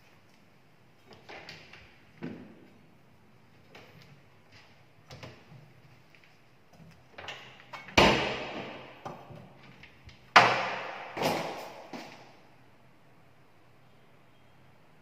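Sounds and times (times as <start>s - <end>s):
loud bangs on a wooden cabinet: 8.0s - 9.0s, 10.4s - 11.9s.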